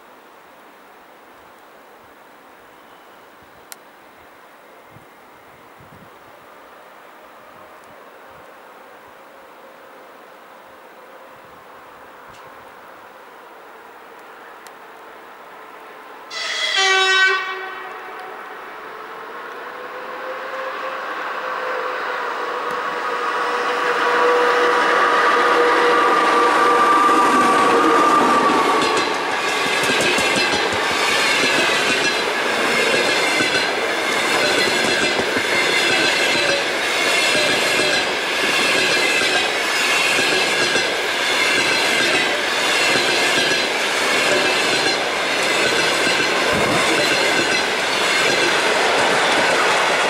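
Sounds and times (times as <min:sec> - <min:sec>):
locomotive steady tones: 0:17.4 - 0:50.0
train rumble: 0:19.5 - 0:50.0
wheels clacking over rail joints: 0:27.0 - 0:50.0.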